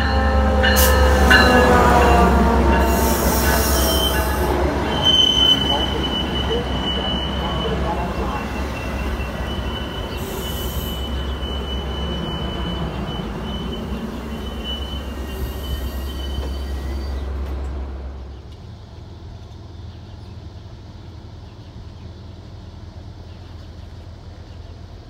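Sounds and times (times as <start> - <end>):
train cars rumbling on rails: 0.0 - 25.0
high-pitched wheel squeal: 0.6 - 17.2.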